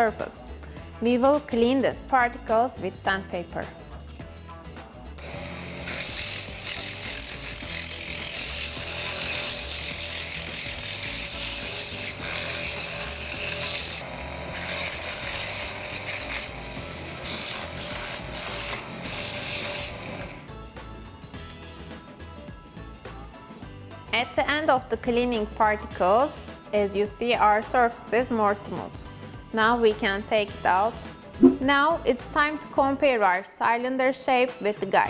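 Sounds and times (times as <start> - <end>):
sandpaper rasping on spinning wood: 5.4 - 16.6, 17.2 - 20.1.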